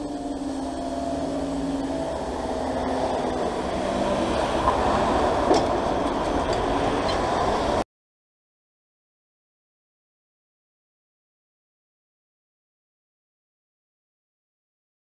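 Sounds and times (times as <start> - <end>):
road traffic moving off: 0.0 - 7.8.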